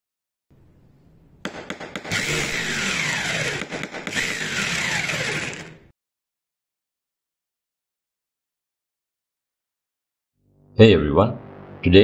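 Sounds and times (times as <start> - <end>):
starter clicks: 1.5 - 5.9
engine revving: 2.1 - 5.8.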